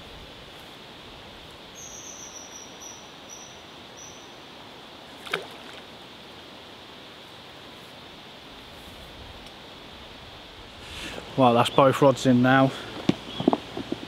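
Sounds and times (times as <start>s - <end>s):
outdoor hiss: 0.0s - 14.0s
small bird chirping: 1.8s - 4.4s, 13.2s - 13.6s.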